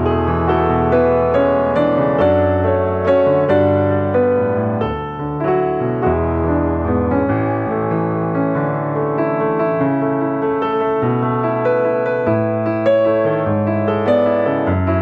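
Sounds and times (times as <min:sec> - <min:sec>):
piano notes and chords: 0:00.0 - 0:15.0.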